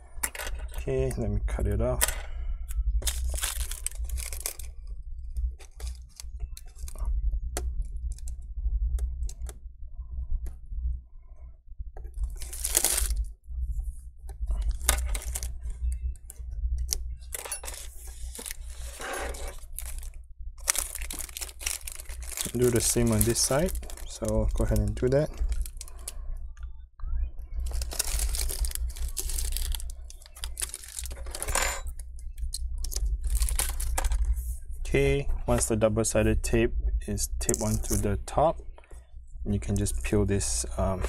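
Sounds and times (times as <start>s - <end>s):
steady low hum: 0.0s - 41.0s
plastic liner crinkling: 2.9s - 8.3s, 12.1s - 13.3s, 14.4s - 26.2s, 27.6s - 31.6s, 32.3s - 34.4s, 37.4s - 38.1s.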